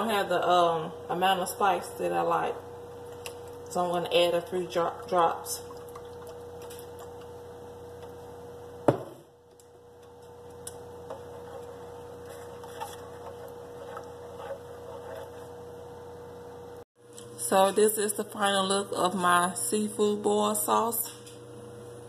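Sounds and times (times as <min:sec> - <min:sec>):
ladle stirring in metal pot: 0:10.1 - 0:15.9.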